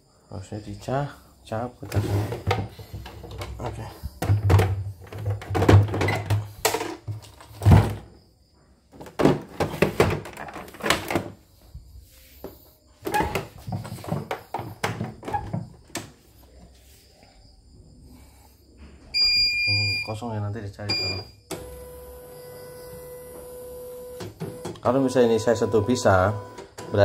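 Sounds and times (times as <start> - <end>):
plastic machine thunking on wood: 4.2 - 8.1, 9.0 - 11.4.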